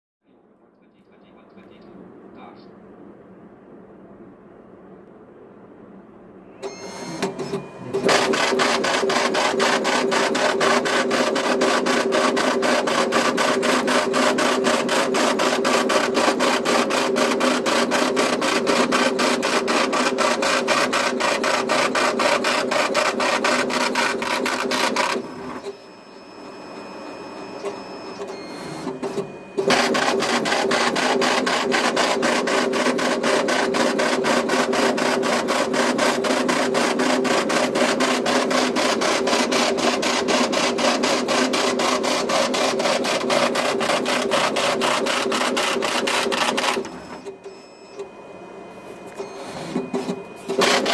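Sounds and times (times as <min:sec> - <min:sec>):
faint hum: 0:00.2 - 0:08.0
braille embosser hammering: 0:29.0 - 0:46.9, 0:49.9 - 0:50.9.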